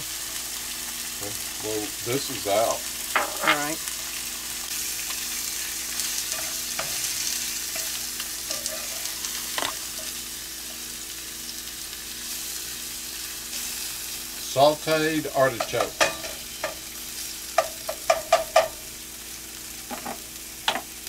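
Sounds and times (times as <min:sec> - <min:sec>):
food sizzling in oil: 0:00.0 - 0:21.0
spatula scraping and knocking pan: 0:03.2 - 0:03.7, 0:06.2 - 0:10.2, 0:17.6 - 0:18.8.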